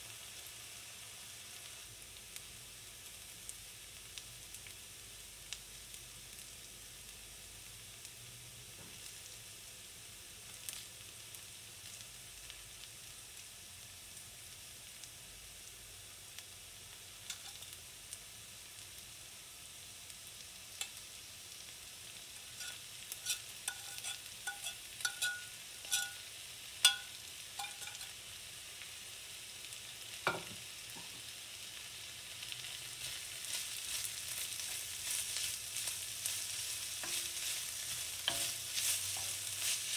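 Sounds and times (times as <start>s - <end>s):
onions sizzling in oil: 0.0s - 39.9s
wooden spoon stirring: 22.4s - 26.2s, 26.8s - 28.2s, 33.0s - 39.9s
light ringing clinks: 23.7s - 26.2s.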